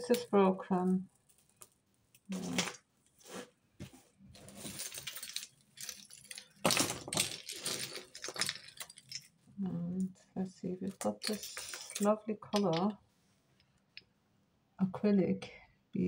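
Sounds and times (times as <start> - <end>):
jewellery clinking and rattling: 4.4 - 9.4, 10.8 - 13.0.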